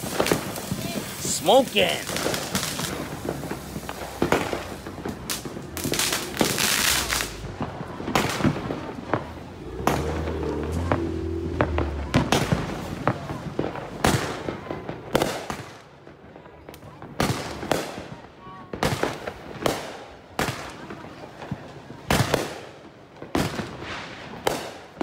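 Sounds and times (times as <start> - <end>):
fireworks launch thumps and bursts: 0.0 - 15.8
fireworks hissing crackle: 0.0 - 15.9.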